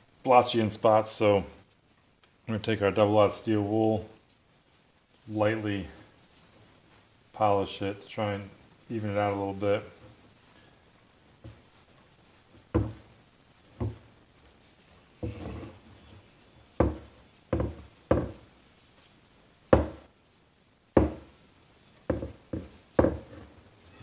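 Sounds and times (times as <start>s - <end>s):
barrel knocking on a bench: 12.7s - 13.0s, 16.8s - 18.4s, 19.8s - 20.0s, 21.0s - 21.3s, 22.1s - 23.3s.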